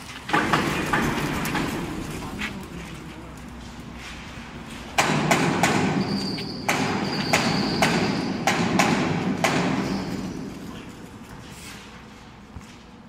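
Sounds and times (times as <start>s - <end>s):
mechanical hum with high whine: 0.0s - 13.0s
sharp metal knocks and clanks: 0.3s - 2.3s, 4.8s - 10.9s.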